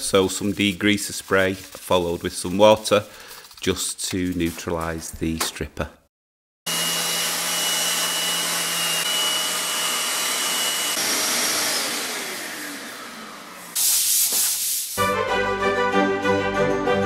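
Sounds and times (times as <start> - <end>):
random orbit sander running: 6.7 - 13.8
shop vacuum running: 6.7 - 14.4.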